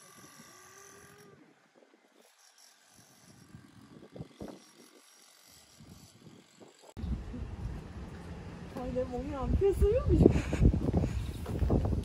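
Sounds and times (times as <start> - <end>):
faint outdoor ambience: 4.6 - 12.0.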